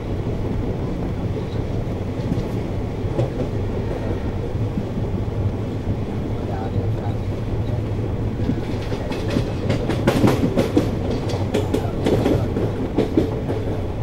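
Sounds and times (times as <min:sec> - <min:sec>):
low train rumble: 0:00.0 - 0:14.0
train wheels clattering over rail joints: 0:07.6 - 0:14.0.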